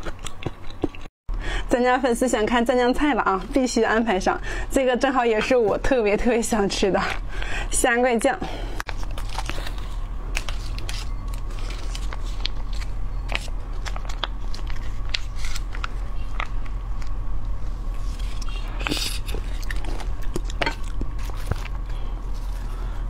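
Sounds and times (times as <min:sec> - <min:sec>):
person chewing crunchy vegetables: 0:00.0 - 0:01.1, 0:17.9 - 0:23.0.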